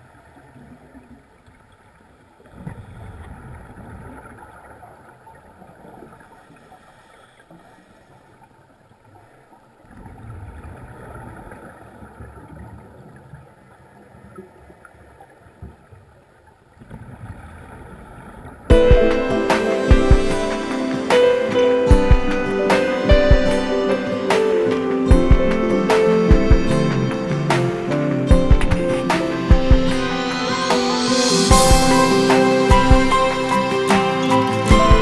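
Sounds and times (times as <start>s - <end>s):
music: 18.7s - 35.0s
regulator hiss: 18.7s - 35.0s.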